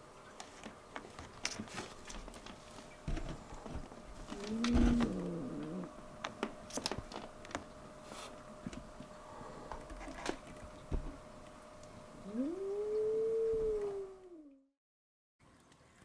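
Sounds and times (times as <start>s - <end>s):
cat growling yowl: 4.4s - 6.0s, 12.2s - 14.6s.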